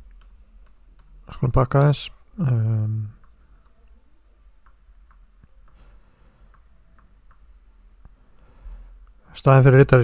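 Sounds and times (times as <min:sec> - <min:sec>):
faint computer clicks: 0:04.6 - 0:08.2.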